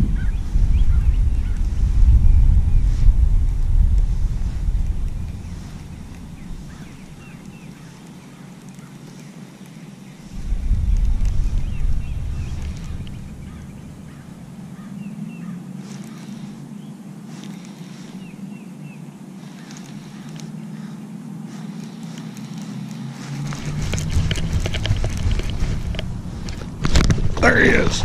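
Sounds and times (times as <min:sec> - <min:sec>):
wind buffeting microphone: 0:00.0 - 0:18.5, 0:19.4 - 0:28.0
faint low hum: 0:00.0 - 0:28.0
bird chirping: 0:04.4 - 0:26.8
light clicks and rattles: 0:21.6 - 0:28.0.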